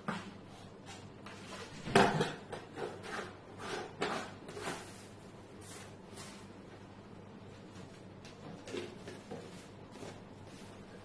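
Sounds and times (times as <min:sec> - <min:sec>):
plastic lid scraping and rubbing: 0:01.4 - 0:05.0.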